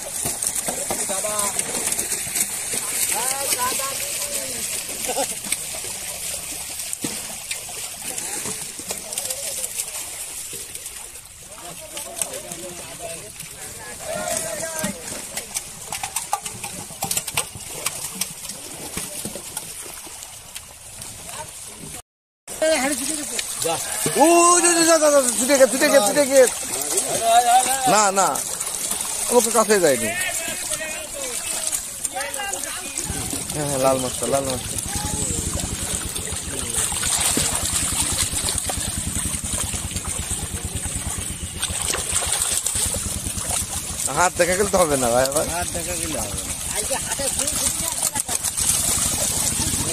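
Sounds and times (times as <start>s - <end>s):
fish thrashing water in a net: 0.0s - 49.9s
small engine running: 33.0s - 49.9s.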